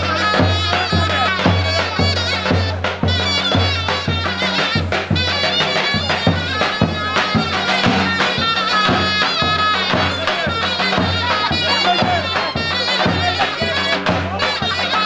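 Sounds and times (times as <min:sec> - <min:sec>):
drum beats: 0:00.0 - 0:15.0
reedy wind melody: 0:00.0 - 0:15.0.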